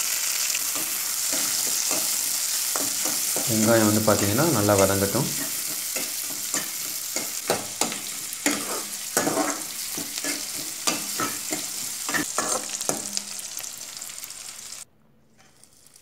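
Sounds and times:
vegetables sizzling in hot oil: 0:00.0 - 0:14.9
steel ladle scraping a wok: 0:00.3 - 0:03.5, 0:05.4 - 0:13.4.

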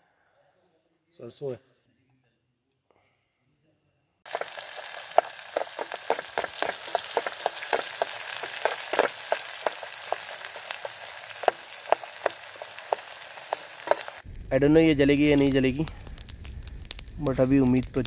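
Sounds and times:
metal spoon stirring: 0:04.3 - 0:14.2
onions sizzling in hot oil: 0:04.3 - 0:18.0.

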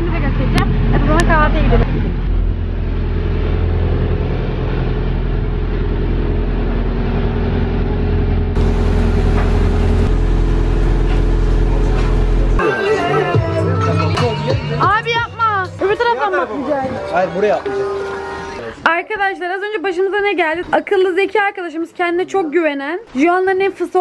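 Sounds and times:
boat engine droning: 0:00.0 - 0:14.2.

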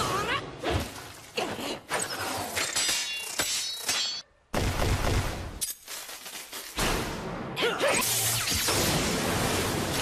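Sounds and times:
sharp hits and metallic clashes: 0:02.4 - 0:04.3.

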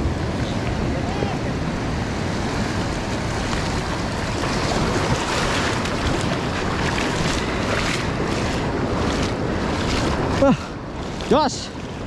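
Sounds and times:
waves washing over rocks: 0:00.0 - 0:12.0
wind rumbling on microphone: 0:00.0 - 0:12.0.

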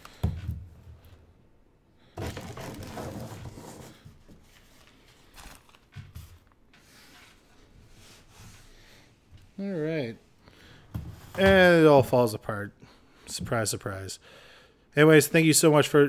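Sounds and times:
faint rustling and handling: 0:02.2 - 0:10.3.

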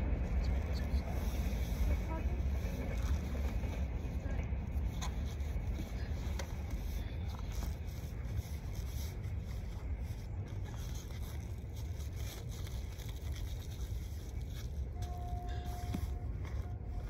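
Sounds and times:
faint rustles and scrapes: 0:00.2 - 0:17.0.

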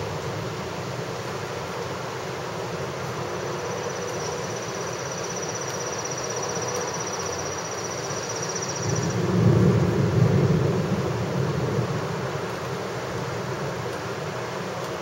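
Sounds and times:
rain on pavement and cars: 0:00.0 - 0:15.0
wind: 0:00.0 - 0:15.0.

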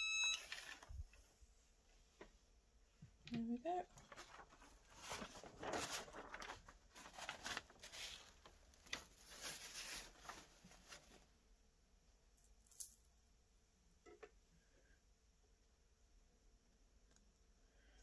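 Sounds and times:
plastic sheet rustling and crinkling: 0:00.4 - 0:01.3, 0:03.4 - 0:11.4.

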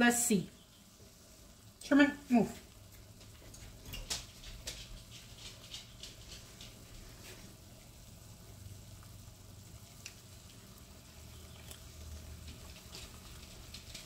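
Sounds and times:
water bubbling in a pot: 0:06.7 - 0:14.0.

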